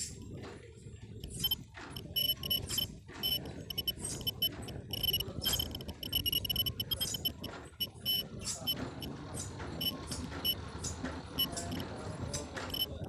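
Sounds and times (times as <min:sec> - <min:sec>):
short high-pitched electronic beeps: 0:01.4 - 0:09.1, 0:12.7 - 0:13.0.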